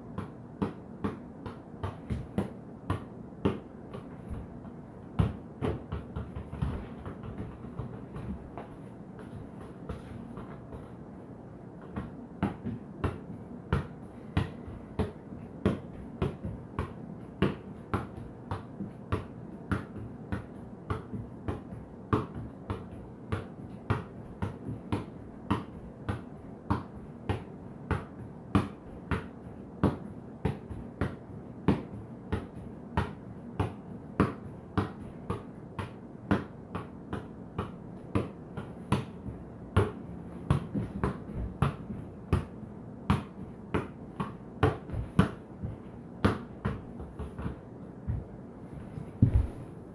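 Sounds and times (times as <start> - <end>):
soccer ball taps on bare feet: 0.1 - 11.0, 11.8 - 42.5, 43.1 - 49.7.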